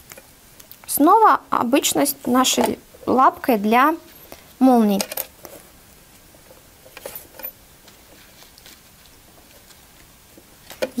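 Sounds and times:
fabric rustling: 0:06.4 - 0:10.0.

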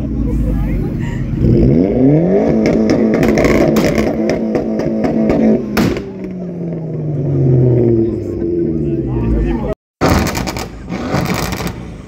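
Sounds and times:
car engine revving hard: 0:01.4 - 0:09.3
exhaust popping and crackling: 0:02.4 - 0:08.4, 0:10.0 - 0:12.0
loud exhaust bang: 0:05.3 - 0:06.4.

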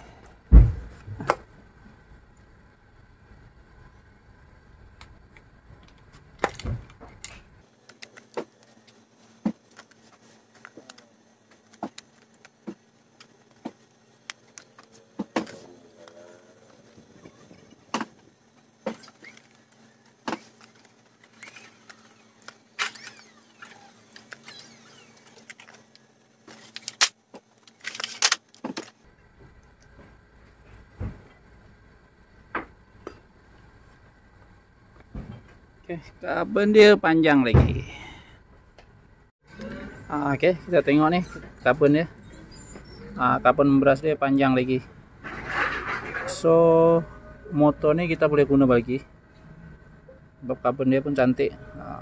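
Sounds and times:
small metal parts set down: 0:26.5 - 0:29.0, 0:45.2 - 0:46.3.

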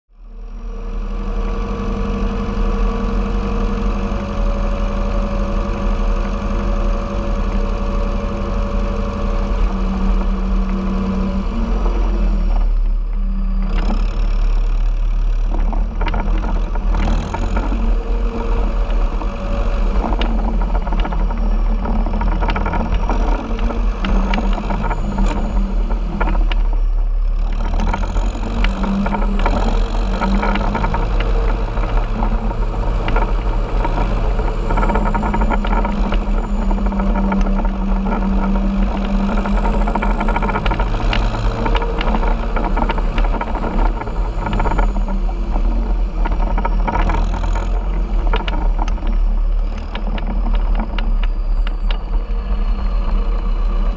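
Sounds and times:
tractor diesel engine running: 0:00.2 - 0:53.9
rattling clicks and knocks: 0:13.6 - 0:53.9.

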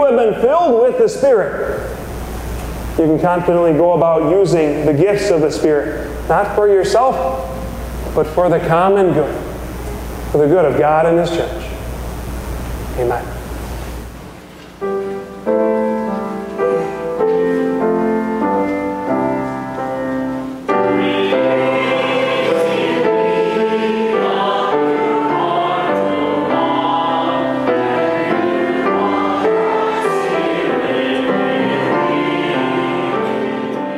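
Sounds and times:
choir singing: 0:20.7 - 0:33.9.

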